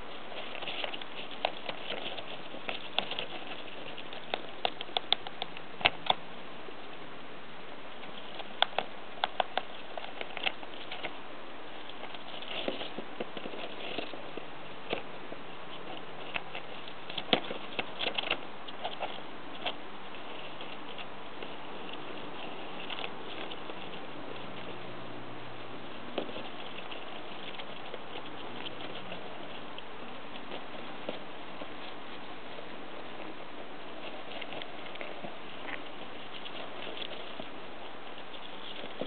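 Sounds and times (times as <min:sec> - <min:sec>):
rodent gnawing cardboard: 0:00.0 - 0:06.2, 0:07.9 - 0:39.0
shavings rustling: 0:08.1 - 0:39.0.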